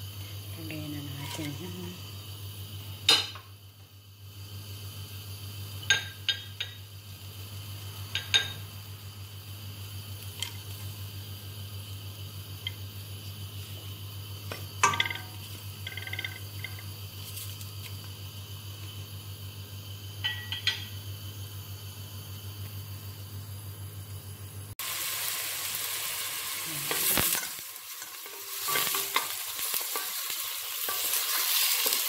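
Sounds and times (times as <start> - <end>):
steady low hum: 0.0 - 24.8
bowl and spoon knocking on pot: 14.5 - 16.8.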